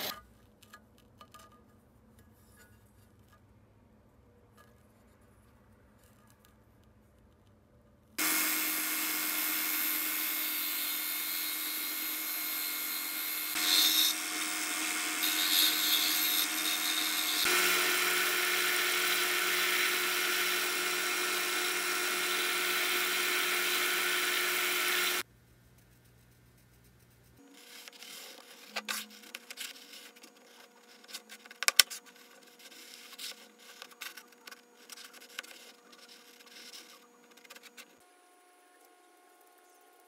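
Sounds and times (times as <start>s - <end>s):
belt sander grinding: 8.2s - 25.2s
disc sander sanding wood: 8.2s - 25.2s.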